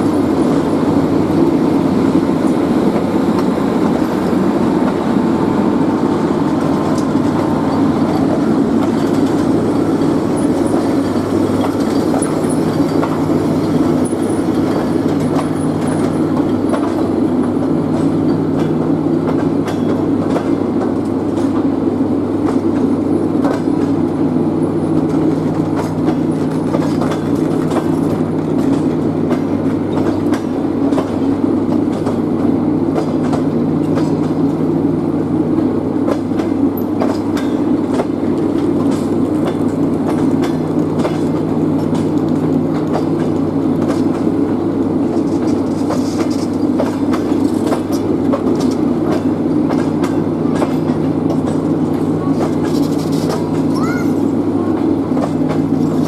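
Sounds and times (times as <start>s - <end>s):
train wheels rumbling on rails: 0.0s - 56.0s
wheel clicks on rail joints: 25.0s - 32.2s, 36.1s - 44.3s, 45.0s - 53.7s.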